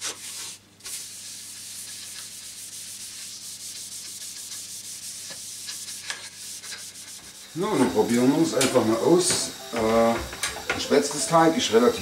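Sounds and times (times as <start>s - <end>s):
paper towel rubbing on wood: 0.0s - 7.4s.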